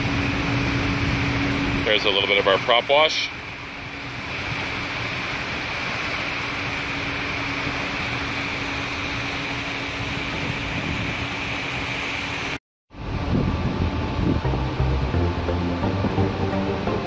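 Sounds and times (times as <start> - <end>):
propeller wash churning water: 0.0 - 17.0
ship mechanical hum: 0.0 - 17.0
music: 14.1 - 17.0.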